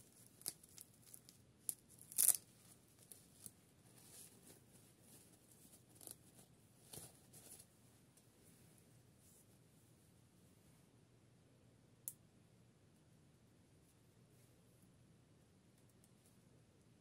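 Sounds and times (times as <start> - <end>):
fabric rustling: 2.2 - 7.8.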